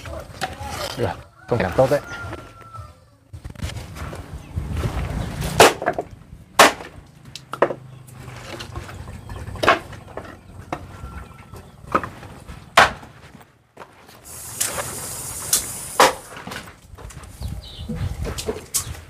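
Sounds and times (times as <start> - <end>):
construction knocks: 5.5 - 13.2.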